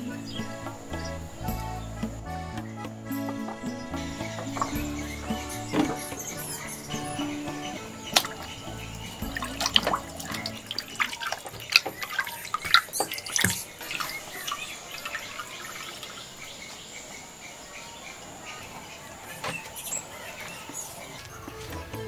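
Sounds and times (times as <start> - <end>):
water splashing and dripping: 4.6 - 17.4.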